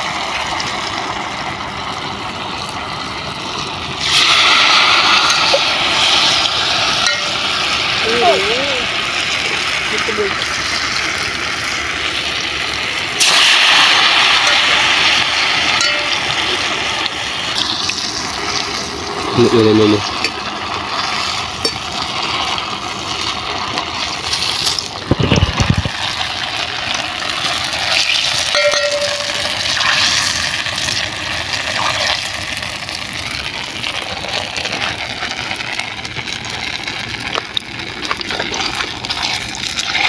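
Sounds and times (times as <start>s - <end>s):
oil sizzling deep-frying dough: 0.0s - 40.0s
strainer stirring in a metal pot: 5.2s - 7.9s, 27.9s - 31.0s.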